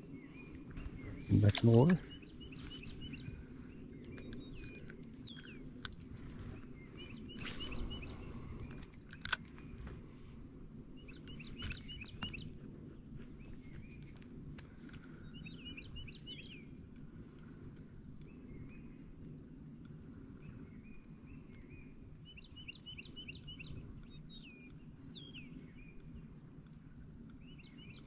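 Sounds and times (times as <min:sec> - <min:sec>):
low background rumble: 0:00.0 - 0:28.0
small songbirds chirping: 0:00.0 - 0:28.0
sharp clicks: 0:08.6 - 0:09.7.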